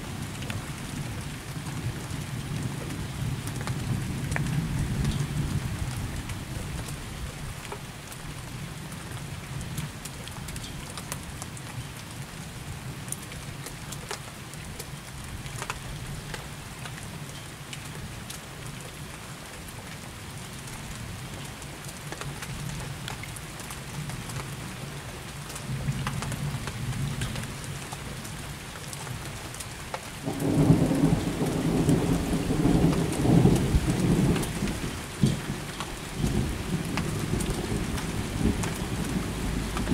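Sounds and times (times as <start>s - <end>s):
raindrops ticking close by: 0.0s - 39.9s
steady rain: 0.0s - 39.9s
low rumble of thunder: 30.2s - 39.9s.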